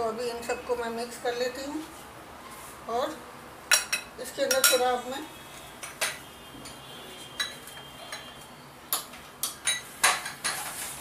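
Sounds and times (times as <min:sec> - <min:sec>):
spoon clinking glass bowls: 0:03.7 - 0:05.0, 0:07.4 - 0:08.4, 0:09.4 - 0:10.6.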